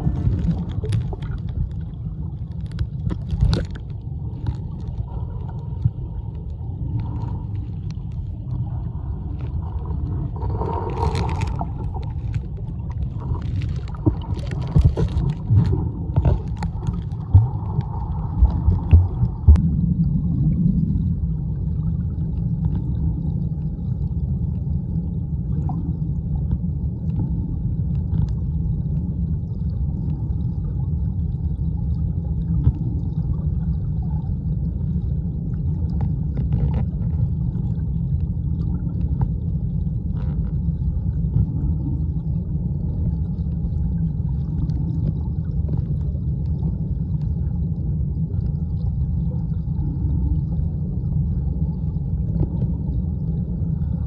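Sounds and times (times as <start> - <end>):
underwater rushing current rumble: 0.0 - 24.1
faint ticks: 0.7 - 8.6.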